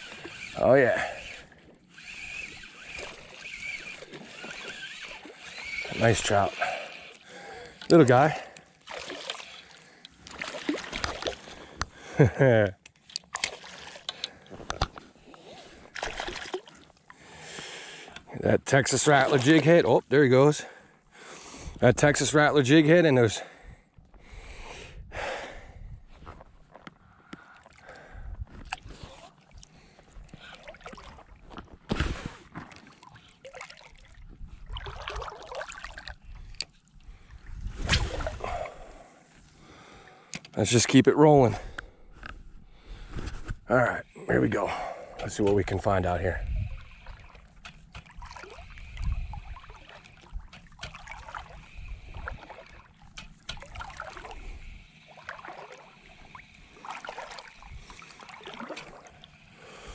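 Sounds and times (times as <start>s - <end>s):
shallow water sloshing: 0.0s - 12.0s, 13.0s - 21.1s, 26.3s - 39.5s, 45.0s - 59.9s
wind rumbling on microphone: 23.6s - 26.6s, 36.2s - 39.0s, 45.3s - 47.2s, 48.7s - 50.6s.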